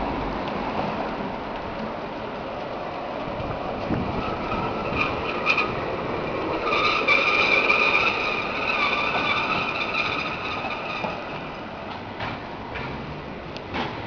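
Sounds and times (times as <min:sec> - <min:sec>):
cable car rumbling: 0:00.0 - 0:14.0
cable car squealing: 0:03.9 - 0:11.8.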